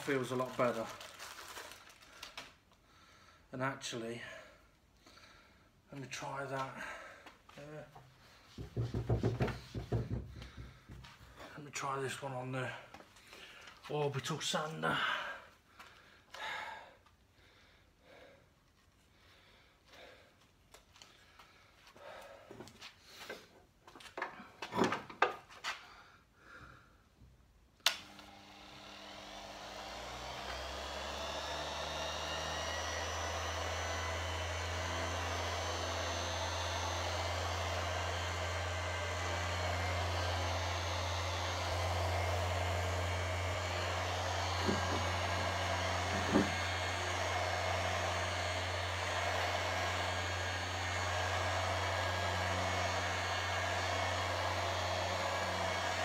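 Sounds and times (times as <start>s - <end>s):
orbital sander motor humming: 0.0s - 1.3s, 27.9s - 56.0s
sander switch click: 27.8s - 28.3s.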